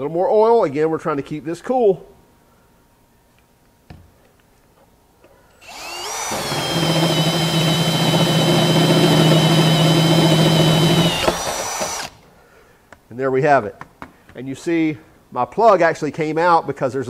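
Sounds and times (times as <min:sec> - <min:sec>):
cordless drill motor whine: 0:05.6 - 0:12.2
cutter humming through steel: 0:05.6 - 0:12.2.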